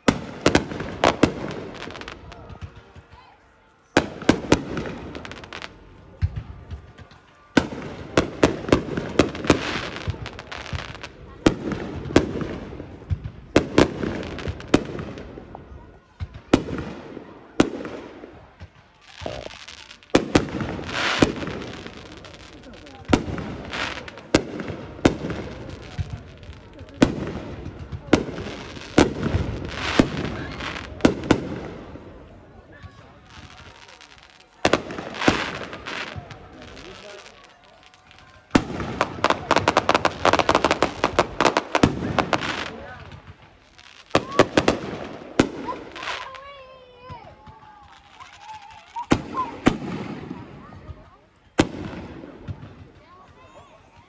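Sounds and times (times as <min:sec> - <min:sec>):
fireworks bangs: 0:00.0 - 0:03.2, 0:04.0 - 0:54.0
fireworks crackling pops: 0:00.0 - 0:03.3, 0:03.9 - 0:54.0.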